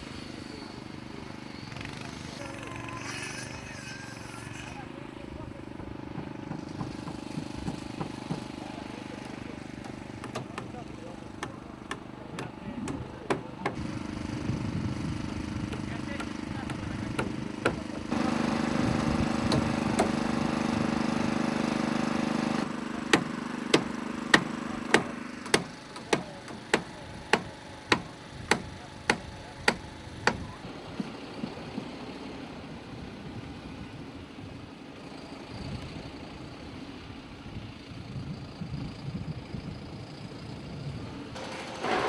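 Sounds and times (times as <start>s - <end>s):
sharp knocks: 9.8s - 10.8s.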